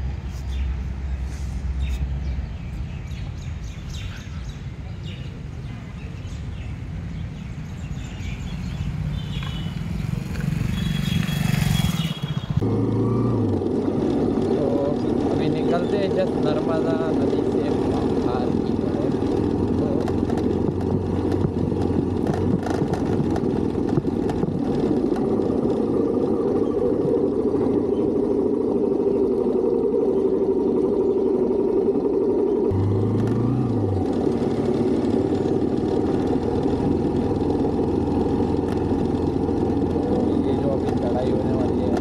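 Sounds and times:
motorcycle engine: 6.2 - 42.0
low rising and falling tone: 12.6 - 42.0
wind on microphone: 16.9 - 32.8.

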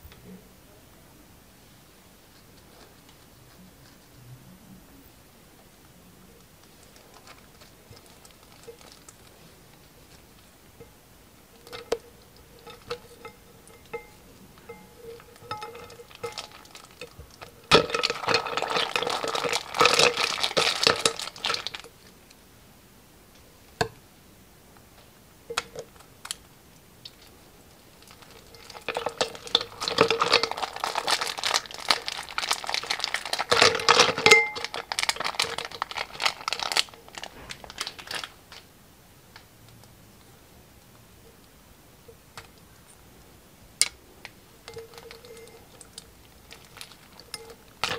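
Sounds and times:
plastic bags crinkling: 6.8 - 10.2, 11.6 - 22.1, 27.8 - 38.7, 44.6 - 47.9.

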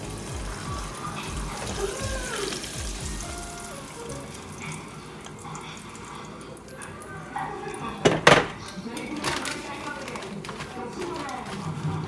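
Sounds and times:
music with thudding bass beat: 0.0 - 3.7
shrimp deep-frying in oil: 0.0 - 12.0.

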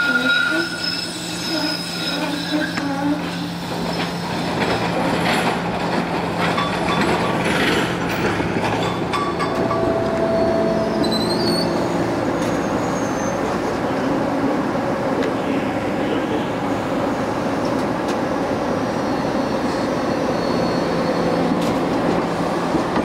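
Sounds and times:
trolley motors humming: 2.8 - 23.0
wheels squealing: 8.7 - 13.8.

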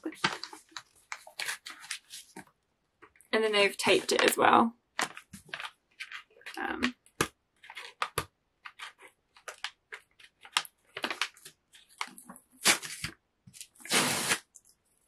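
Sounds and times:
paper wrapping crinkling: 0.0 - 2.4, 5.0 - 6.6, 7.6 - 14.6.

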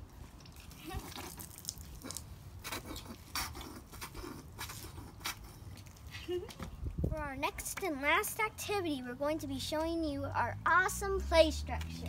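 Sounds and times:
water squirting onto brick paving: 0.0 - 6.1.

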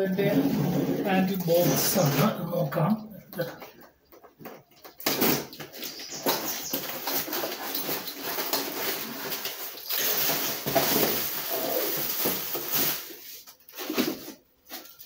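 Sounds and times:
plastic wrapping crinkling: 4.4 - 15.0.

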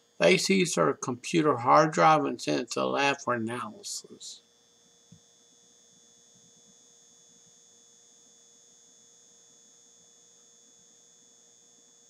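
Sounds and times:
faint steady hum: 0.0 - 5.2
high-pitched whine: 0.2 - 4.4.

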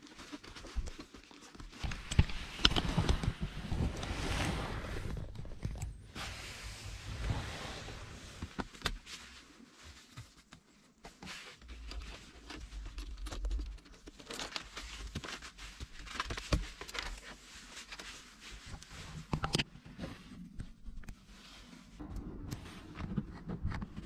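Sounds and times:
low rumble: 22.0 - 24.0.

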